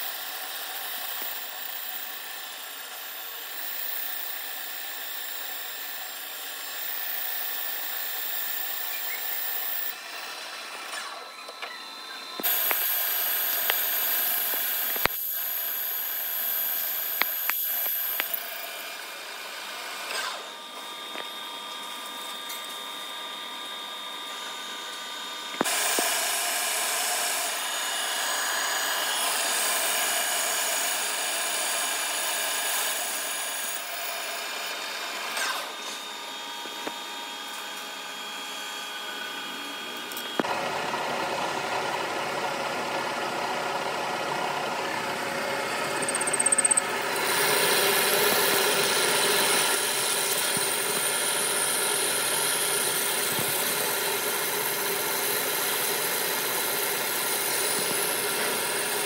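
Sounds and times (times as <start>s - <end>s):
metal lathe running: 0.0s - 35.6s, 37.1s - 59.0s
steel being turned under coolant: 45.9s - 59.0s.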